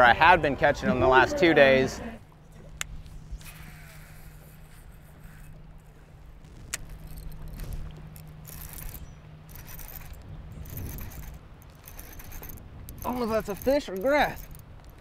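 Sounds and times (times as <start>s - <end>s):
steady low hum: 0.0s - 15.0s
fishing gear clicking and rattling: 3.4s - 15.0s.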